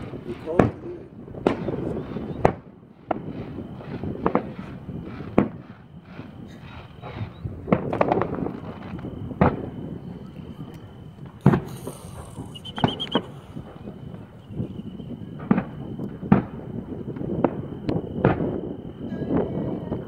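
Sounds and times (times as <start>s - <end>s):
distant fireworks bangs: 0.0s - 20.0s
faint steady high tone: 9.0s - 16.1s, 18.9s - 20.0s.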